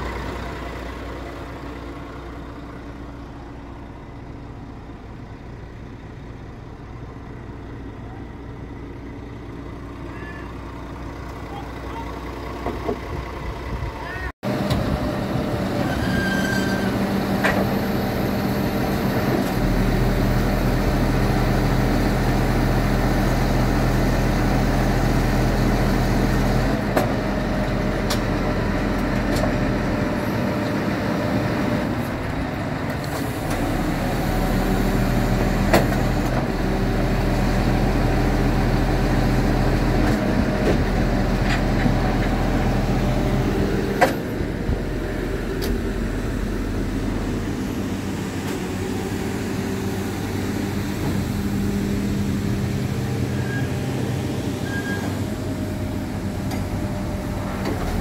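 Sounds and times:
truck diesel engine idling: 0.0 - 15.8, 33.6 - 58.0.

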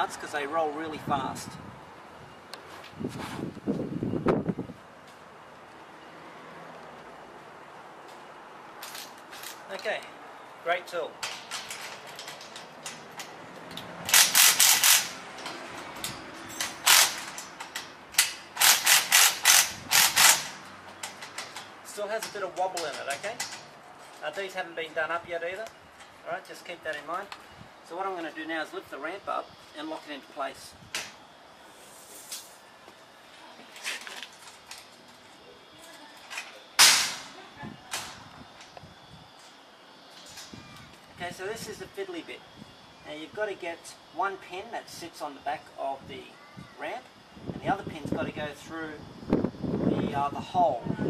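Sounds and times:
hand ratchet clicking: 11.5 - 23.7.

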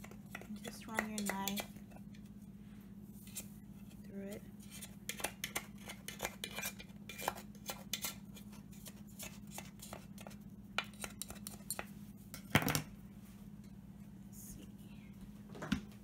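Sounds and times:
knife scraping metal cake pan: 0.3 - 1.8, 3.2 - 4.0, 4.6 - 11.9.

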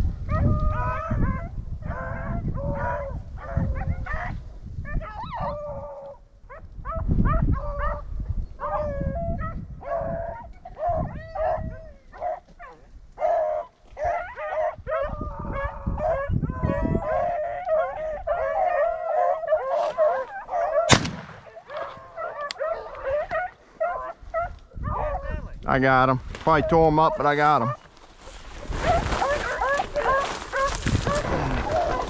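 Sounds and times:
dogs baying and yelping: 0.2 - 25.5, 28.8 - 32.0
shotgun shot: 20.9 - 21.7.

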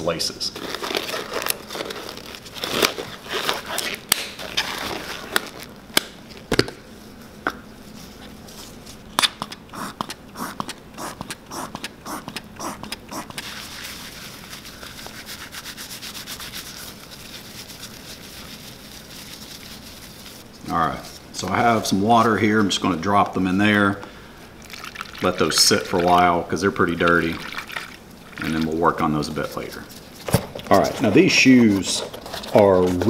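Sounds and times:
rubber gloves snapping: 3.8 - 4.6, 5.3 - 6.8.

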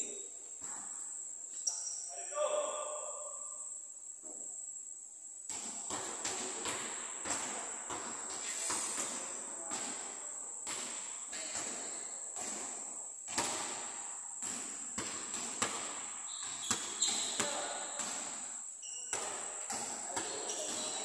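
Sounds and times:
high-pitched hiss: 0.0 - 10.6
basketball bouncing on court floor: 5.5 - 21.0.

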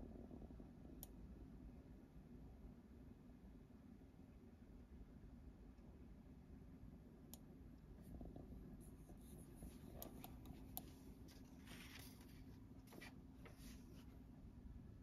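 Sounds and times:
steady low hum: 0.0 - 15.0
soft clicks: 7.3 - 8.4, 9.1 - 12.2
light scratchy rustle: 8.8 - 14.2.

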